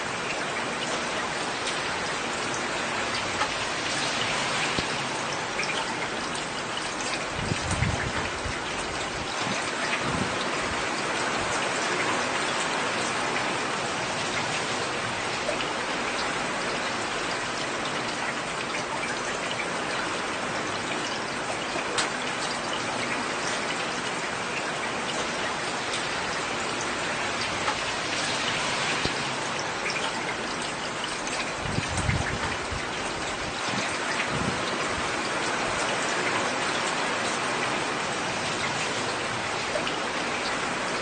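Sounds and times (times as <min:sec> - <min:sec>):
heavy rain hissing: 0:24.2 - 0:41.0.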